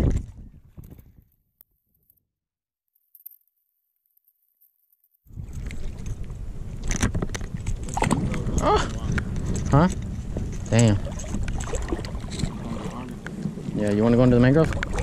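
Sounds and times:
wind buffeting microphone: 0.0 - 1.2, 5.3 - 15.0.

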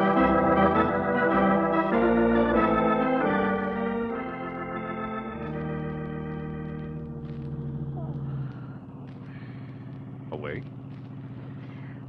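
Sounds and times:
organ chords: 0.0 - 12.0.

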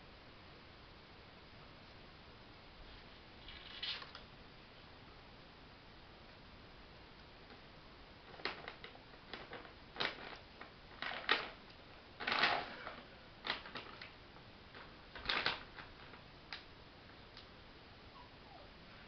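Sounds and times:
crinkling bag and clicking kibble: 8.2 - 16.7.

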